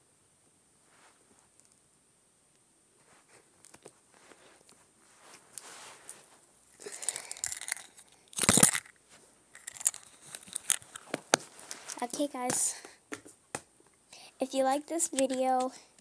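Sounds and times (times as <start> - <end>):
faint crackles and clicks: 0.9 - 1.9, 2.5 - 12.9, 13.5 - 16.0
crinkling and rustling: 3.0 - 14.0, 14.6 - 16.0.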